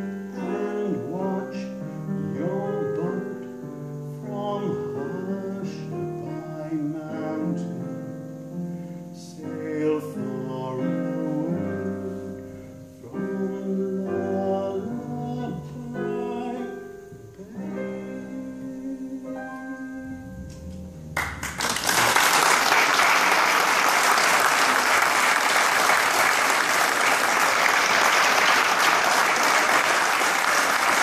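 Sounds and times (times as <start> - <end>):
soft piano chords: 0.0 - 28.2
audience applause: 21.1 - 31.0.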